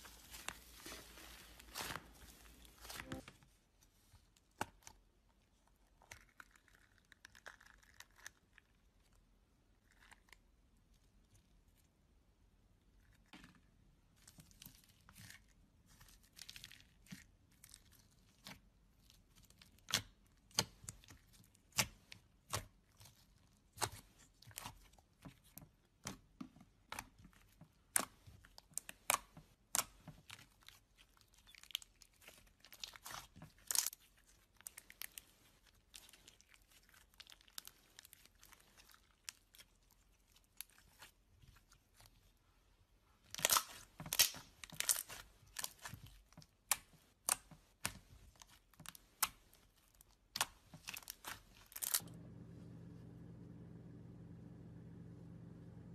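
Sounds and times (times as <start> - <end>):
hands squishing slime: 0.0 - 3.2, 14.1 - 42.4, 43.2 - 52.0.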